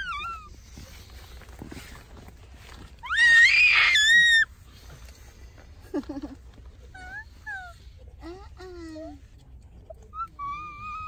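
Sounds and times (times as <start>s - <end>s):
toddler squealing: 3.0s - 4.5s.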